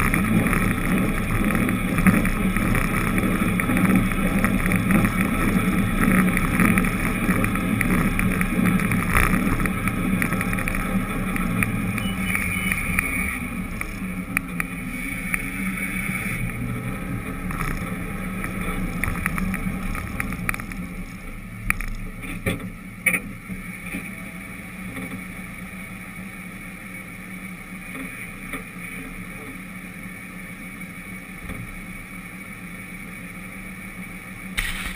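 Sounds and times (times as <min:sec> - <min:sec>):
road and wind noise: 0:00.0 - 0:34.9
vehicle engine running: 0:00.0 - 0:34.9
sharp clicks: 0:34.6 - 0:34.9.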